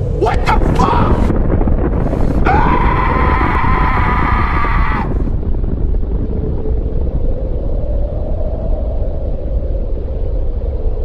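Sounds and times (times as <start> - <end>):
explosion rumble: 0.0 - 7.6
steady high wail: 2.4 - 5.3.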